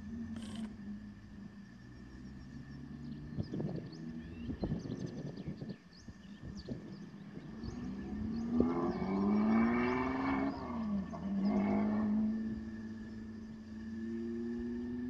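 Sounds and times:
car engine accelerating: 6.2s - 15.0s.

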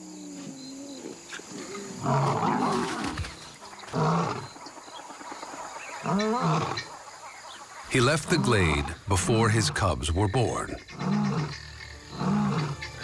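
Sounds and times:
lions snarling and growling: 0.6s - 5.0s, 5.8s - 6.9s, 7.9s - 9.0s, 10.7s - 13.0s.

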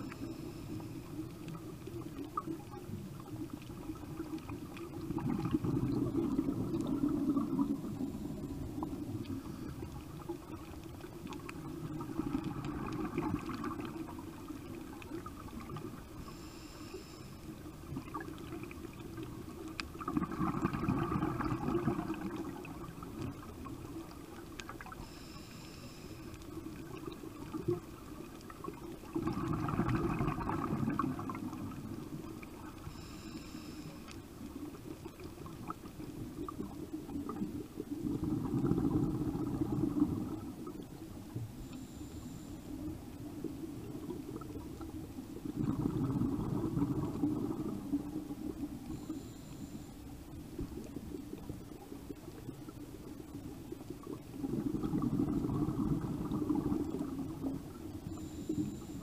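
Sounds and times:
regulator inhale hiss: 0.0s - 1.5s, 16.1s - 17.8s, 24.9s - 26.6s, 32.6s - 34.4s, 41.3s - 43.0s, 48.9s - 50.2s, 58.0s - 59.0s
exhaled bubbles gurgling underwater: 0.0s - 59.0s.

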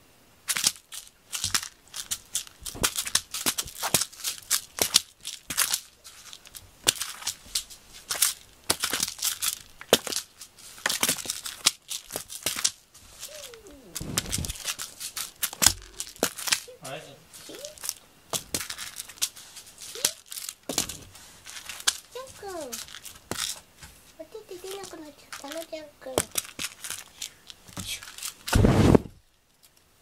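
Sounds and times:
cat scratching cardboard: 1.2s - 29.2s.

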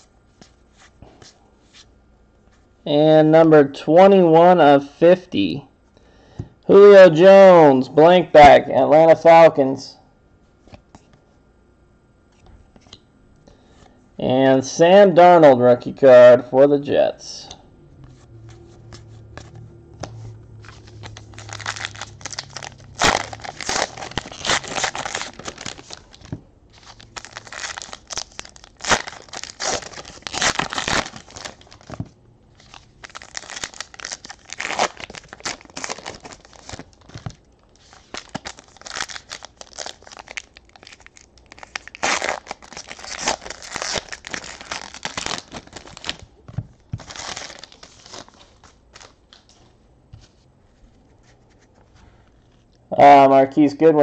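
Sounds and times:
card pack wrappers tearing: 20.6s - 46.2s, 46.9s - 49.2s.

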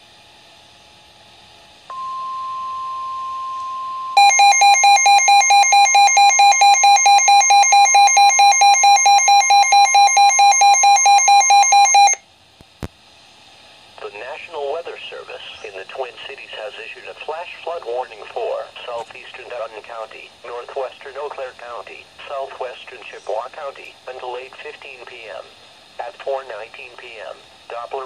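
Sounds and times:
rapid alarm beeping: 1.9s - 12.2s
steady weather radio warning tone: 1.9s - 12.2s, 14.0s - 28.0s.

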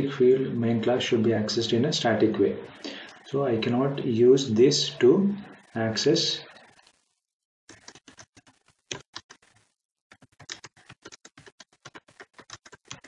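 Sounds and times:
keyboard typing: 7.7s - 13.0s.

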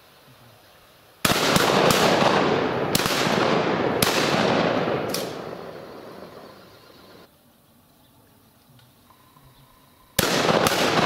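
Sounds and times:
gunshot echo: 1.2s - 6.5s, 10.2s - 11.0s
shotgun shots: 1.2s - 6.5s, 10.2s - 11.0s.

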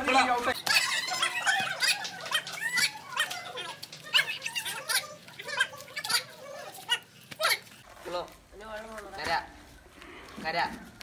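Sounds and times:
children calling out: 0.0s - 7.8s
children squealing and giggling: 0.0s - 7.8s.

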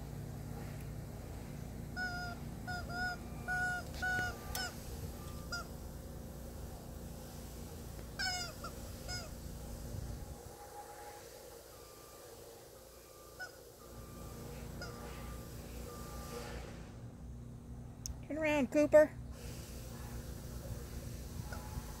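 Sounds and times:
rubber chicken toy squawking: 2.0s - 4.8s, 5.4s - 5.8s, 8.2s - 9.4s, 13.4s - 13.6s.

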